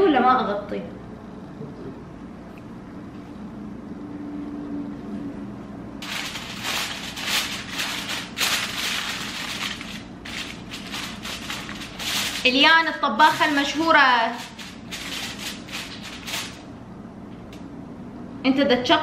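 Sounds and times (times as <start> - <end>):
aluminium foil crinkling: 6.0 - 16.7.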